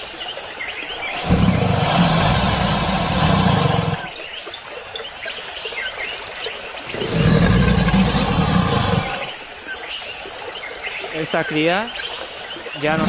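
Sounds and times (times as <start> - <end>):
birds chirping: 0.0 - 13.0
deep rough animal roar: 1.0 - 4.2, 6.9 - 9.4, 12.8 - 13.0.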